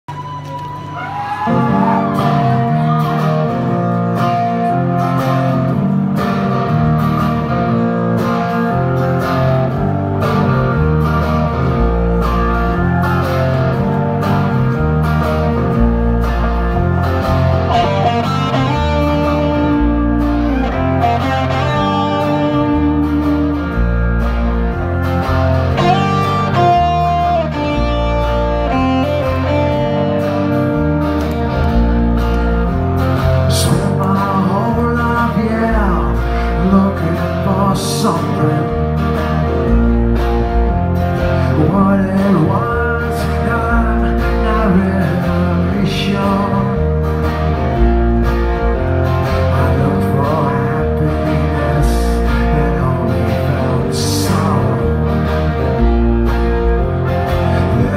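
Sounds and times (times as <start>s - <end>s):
live punk rock band: 0.2s - 57.9s
heavy bass notes: 1.7s - 57.9s.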